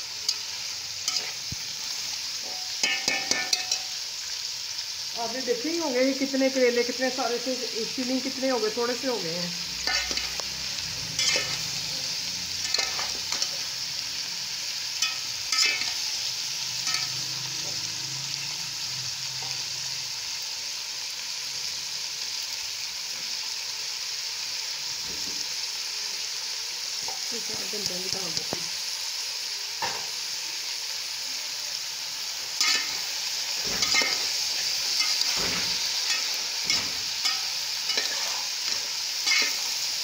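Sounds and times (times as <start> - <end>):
onions sizzling in oil: 0.0 - 40.0
spatula scraping pan: 1.0 - 1.6, 9.8 - 10.4, 11.2 - 11.8, 15.0 - 16.0, 32.6 - 39.7.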